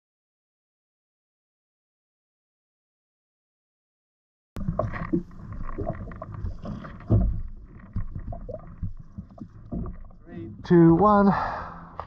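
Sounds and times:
gear knocking against hull: 4.6s - 10.3s
water slapping a kayak hull: 4.6s - 11.0s.

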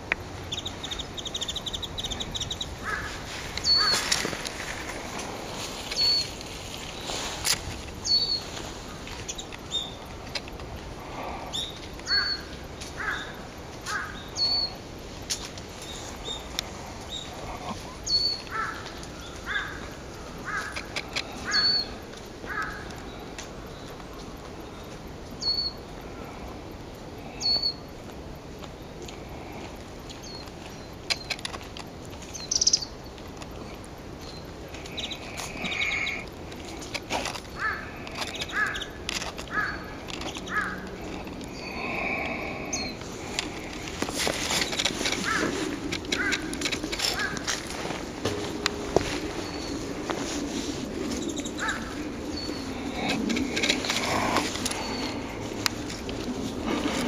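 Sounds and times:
songbird calling: 0.0s - 10.2s, 11.2s - 14.9s, 15.8s - 26.3s, 27.2s - 27.9s, 30.1s - 31.4s, 32.2s - 47.9s, 48.5s - 57.0s
bird dry ticks: 0.0s - 57.0s
harsh short bird calls: 0.5s - 4.1s, 11.5s - 14.8s, 17.1s - 22.9s, 37.5s - 43.0s, 44.7s - 46.5s
high thin bird calls: 0.5s - 4.1s, 5.9s - 6.4s, 8.0s - 8.5s, 11.5s - 14.8s, 17.9s - 19.8s, 20.4s - 22.9s
sharp clicks: 30.2s - 33.7s.

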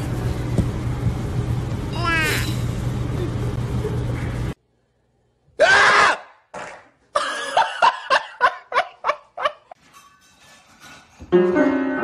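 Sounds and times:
person laughing hard: 7.2s - 9.7s.

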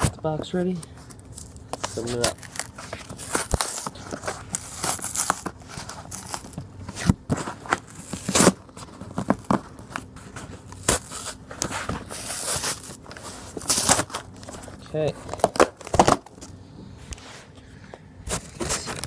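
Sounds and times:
cardboard rustling: 0.0s - 16.6s, 18.3s - 19.0s
cardboard scraping and tearing: 1.9s - 16.4s, 18.3s - 19.0s.

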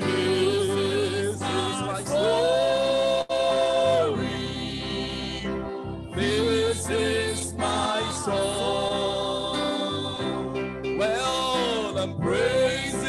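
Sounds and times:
man singing a hymn: 0.0s - 2.9s, 6.2s - 10.3s, 11.0s - 13.0s
sustained instrumental chords: 0.0s - 13.0s.

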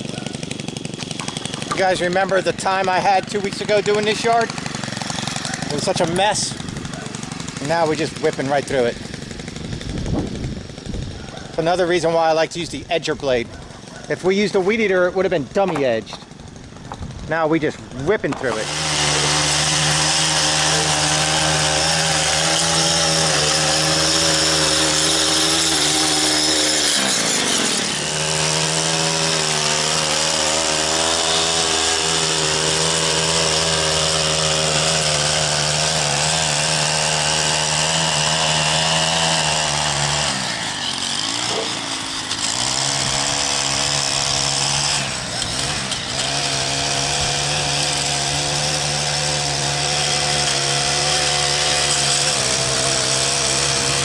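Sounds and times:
stick edger engine cutting turf: 0.0s - 54.0s.

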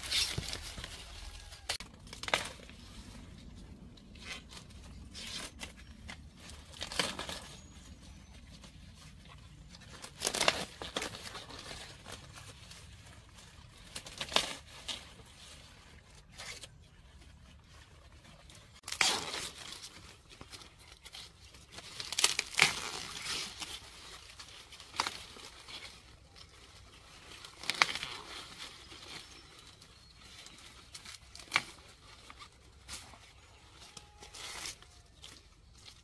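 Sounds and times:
corn leaves rustling: 0.0s - 36.0s
corn ears snapping off: 1.6s - 2.8s, 18.8s - 19.8s, 21.7s - 23.8s, 27.5s - 28.3s.

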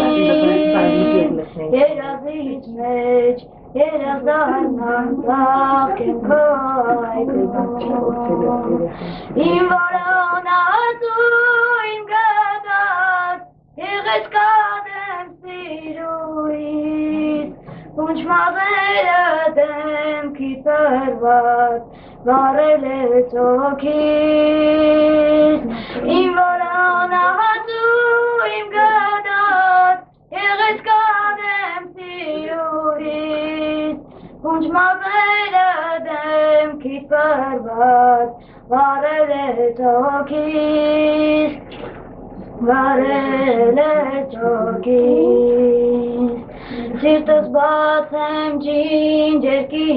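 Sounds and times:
boy singing solo: 0.0s - 1.4s.

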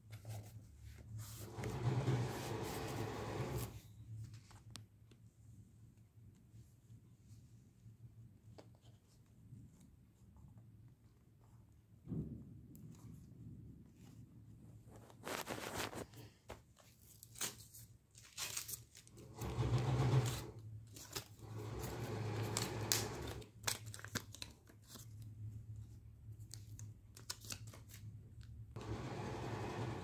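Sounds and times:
paper rustling and tearing: 14.9s - 25.3s.

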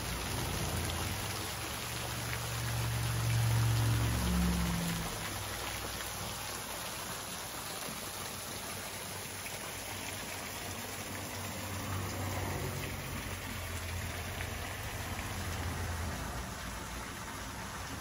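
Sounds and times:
small waterfall splashing into pool: 0.0s - 18.0s.

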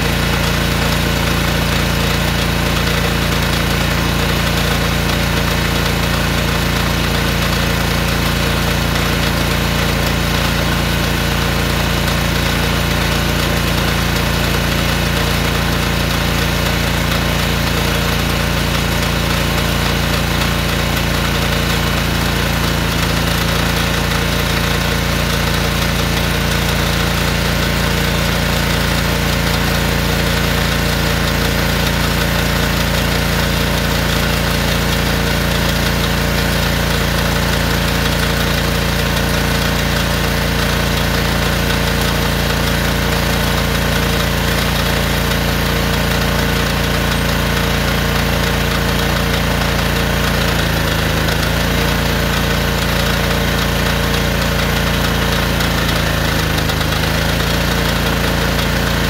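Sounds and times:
pressure washer engine running: 0.0s - 59.0s.

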